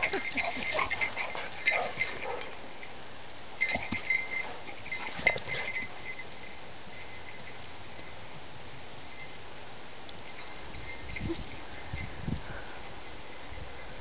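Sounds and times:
dog vocal noises: 0.0s - 2.4s
dogs scuffling: 0.0s - 2.5s, 3.6s - 6.5s
faint steady hiss: 0.0s - 14.0s.

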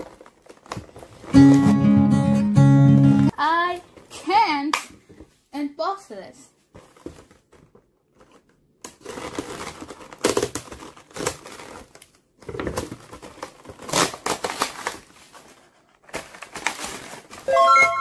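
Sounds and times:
cardboard and plastic crinkling: 0.0s - 1.4s, 6.7s - 17.6s.

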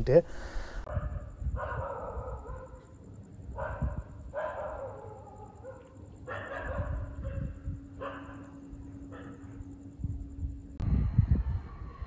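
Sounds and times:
distant dogs barking: 0.6s - 9.8s.

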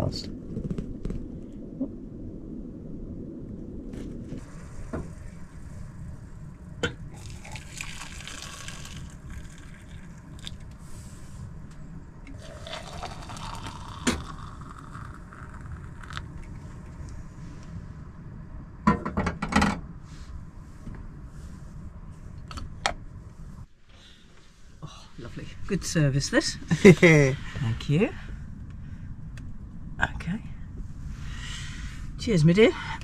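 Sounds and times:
hot water pouring into mug: 7.1s - 10.7s, 12.3s - 16.4s.

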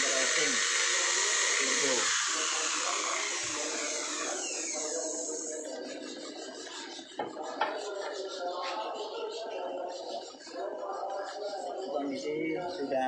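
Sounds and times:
hiss with falling whistle: 0.0s - 5.6s.

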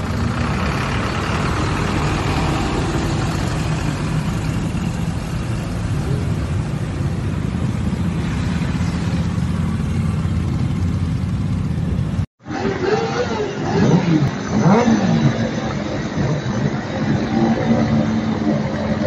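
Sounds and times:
bus engine running: 0.0s - 12.9s
heavy road traffic: 0.0s - 19.0s.

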